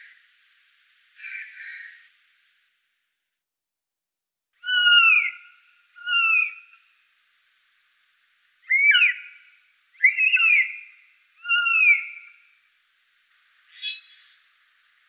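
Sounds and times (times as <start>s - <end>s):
blue jay whistled calls: 4.6s - 6.8s, 8.6s - 12.5s, 13.7s - 14.6s.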